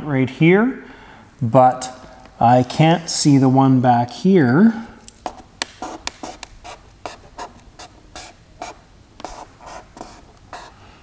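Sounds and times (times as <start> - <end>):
pen scratching on painted surface: 5.2 - 10.8.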